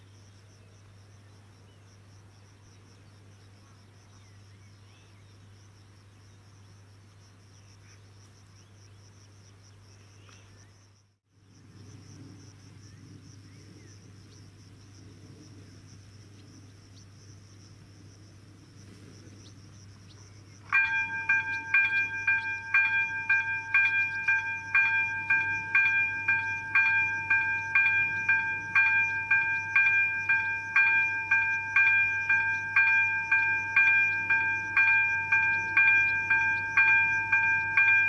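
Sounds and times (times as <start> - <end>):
insects chirring: 0.0 - 38.0.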